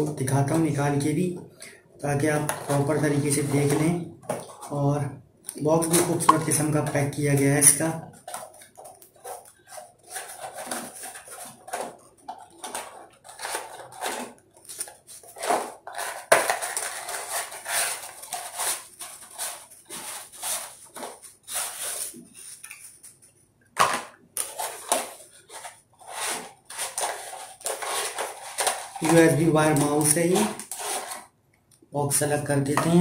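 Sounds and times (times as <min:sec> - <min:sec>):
cardboard box rustling and scraping: 0:24.5 - 0:31.2.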